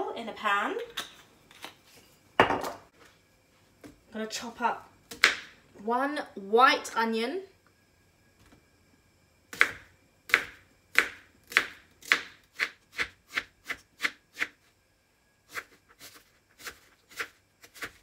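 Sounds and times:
knife chopping onion on plastic board: 9.5 - 14.6, 15.5 - 18.0.

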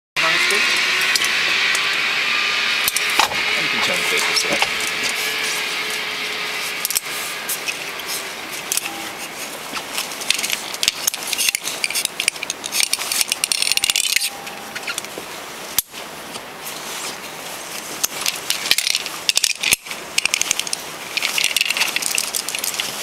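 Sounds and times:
metal carabiners clinking: 2.8 - 15.1, 18.0 - 23.0.

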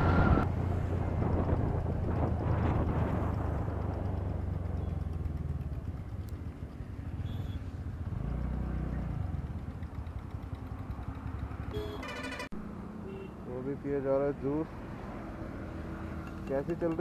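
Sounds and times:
scooter engine at low revs: 0.5 - 12.6.

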